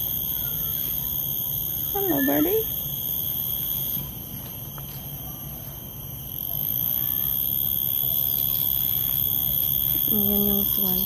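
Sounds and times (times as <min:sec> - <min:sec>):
insects droning: 0:00.0 - 0:11.0
faint bird chirps: 0:01.9 - 0:02.7.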